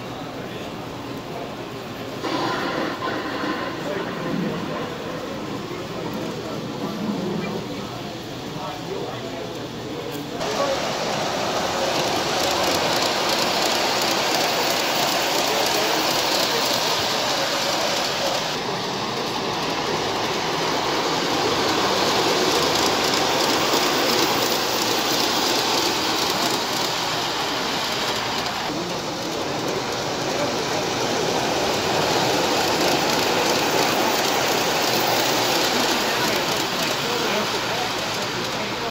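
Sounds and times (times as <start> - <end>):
model train wheels clattering on rails: 9.0 - 38.9.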